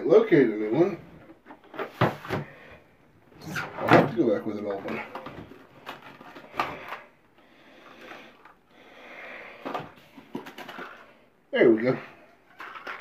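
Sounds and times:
packaging rustling: 4.8s - 7.1s
small parts clicking and knocking: 12.4s - 13.0s.

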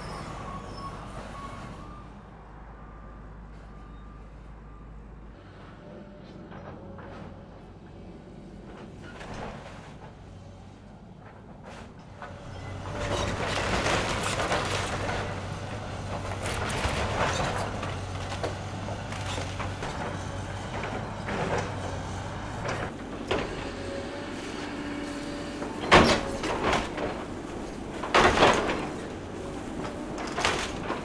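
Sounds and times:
diesel engine humming: 12.3s - 31.0s.

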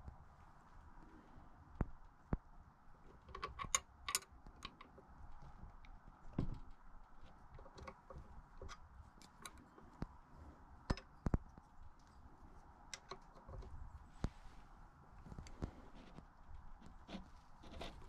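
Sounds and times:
tools clicking and tapping: 3.2s - 5.0s, 10.9s - 11.5s, 12.9s - 13.7s
dull thump: 6.4s - 6.7s.

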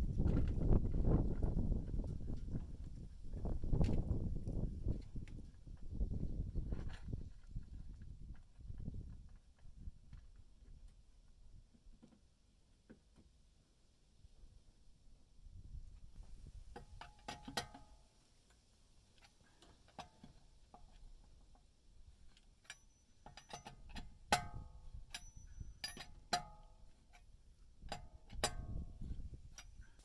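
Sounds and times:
lug wrench clinking on wheel nuts: 22.6s - 30.0s.

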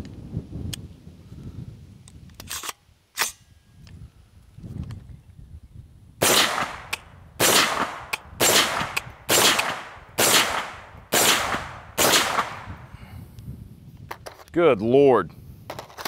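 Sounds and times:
rifle shots: 6.2s - 12.8s.

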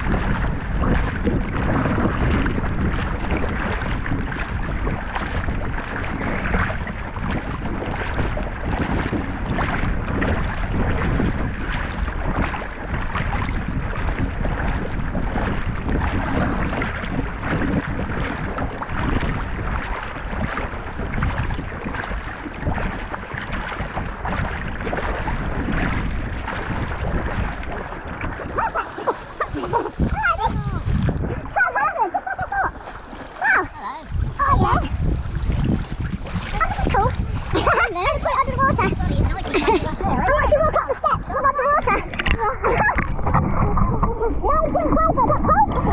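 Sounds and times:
water sloshing: 0.0s - 45.9s
swimmers splashing: 28.1s - 41.7s.

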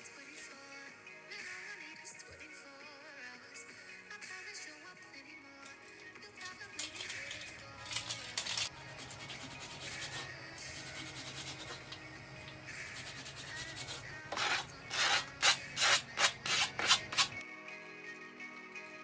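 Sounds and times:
cutting board scraping vegetables: 13.2s - 17.4s.

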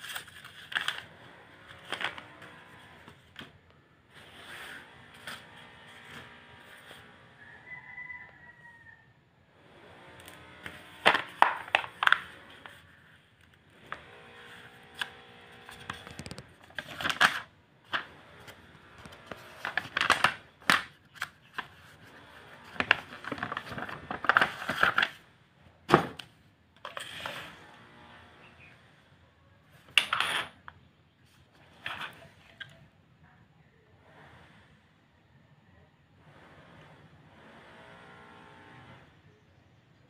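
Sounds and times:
paper rustling: 0.0s - 1.1s, 10.6s - 25.2s.

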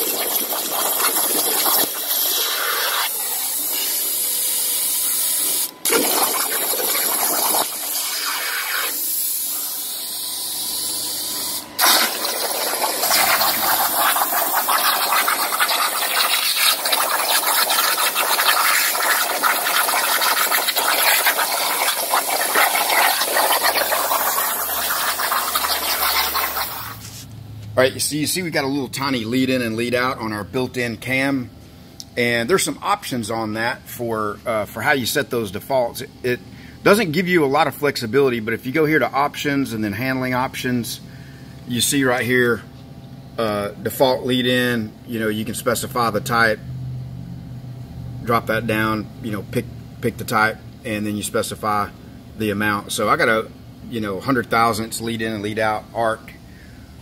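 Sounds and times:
plasma cutter arc hissing: 0.0s - 27.2s.

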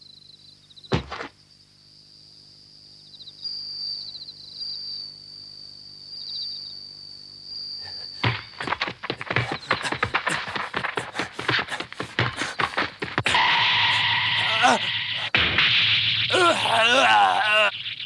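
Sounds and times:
crickets chirping: 0.0s - 15.4s
ball being kicked: 0.9s - 1.3s, 8.2s - 13.4s
soccer ball thud: 0.9s - 1.3s, 8.2s - 13.3s.

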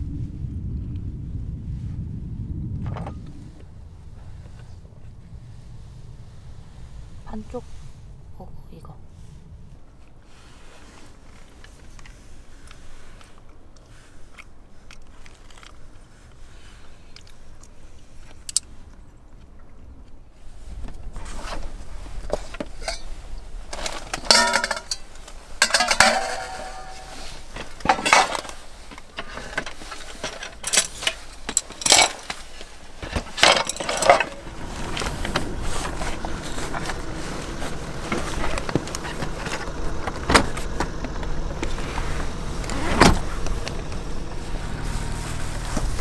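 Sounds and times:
dishes and cutlery clattering: 24.2s - 25.0s, 25.6s - 27.2s.

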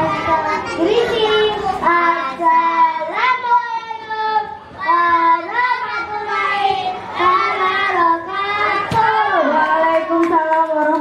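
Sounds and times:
child singing into a microphone: 0.0s - 11.0s.

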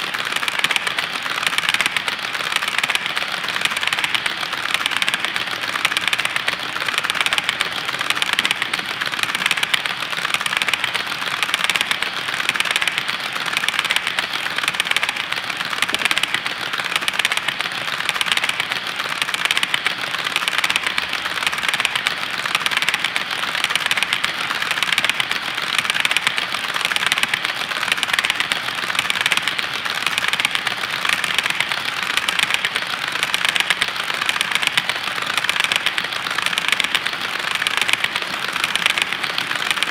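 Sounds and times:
model train wheels clicking on rails: 0.0s - 39.9s.

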